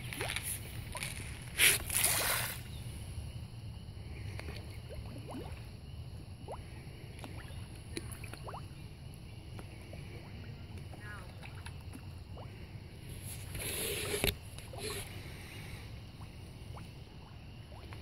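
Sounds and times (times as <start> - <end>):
fish splash in pond: 0.1 - 2.7.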